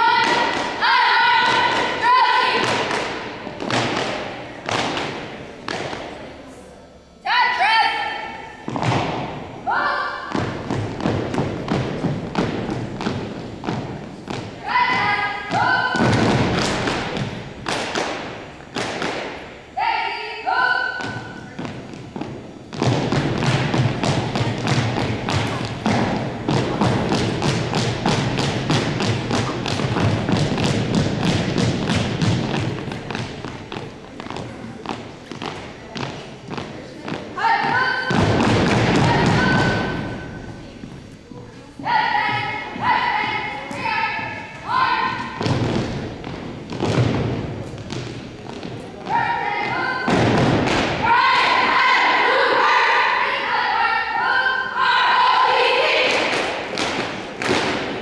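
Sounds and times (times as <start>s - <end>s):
marching shoes on hardwood floor: 10.3s - 17.4s, 21.0s - 39.9s.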